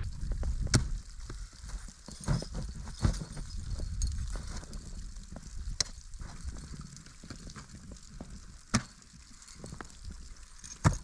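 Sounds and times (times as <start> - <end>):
crampons and ice axes biting ice: 8.7 - 9.0, 10.6 - 11.0.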